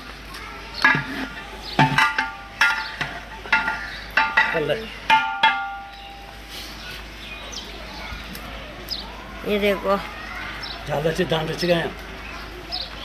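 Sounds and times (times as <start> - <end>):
metal rod clanging on pot rim: 0.8 - 6.0.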